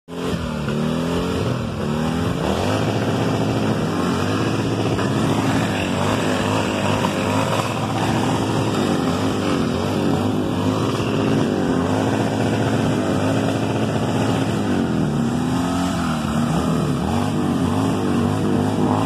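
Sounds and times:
motorcycle engines revving: 0.1s - 19.0s.

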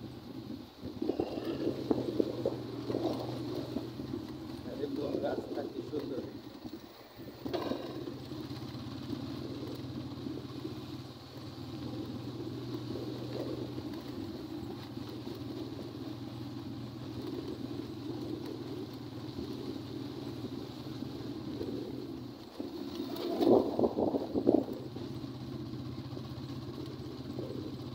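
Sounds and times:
road rumble: 0.0s - 27.9s
small vehicle engine humming: 0.0s - 27.9s.

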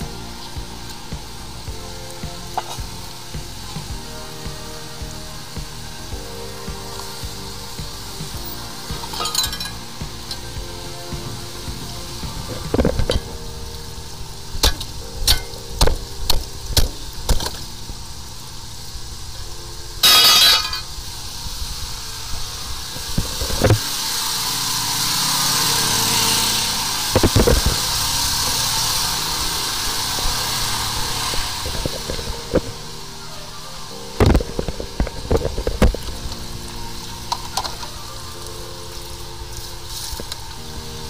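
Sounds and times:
steady hiss: 0.0s - 41.0s.

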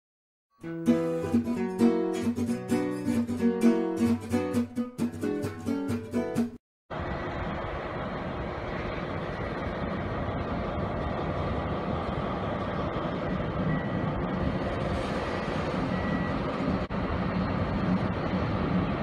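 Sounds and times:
freight locomotive engine and wheel rumble: 6.9s - 19.0s.

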